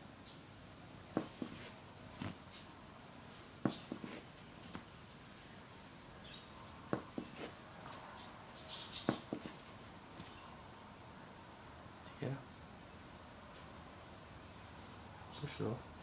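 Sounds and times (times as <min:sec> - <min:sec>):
kitten batting a ball on fabric: 0:01.1 - 0:02.4.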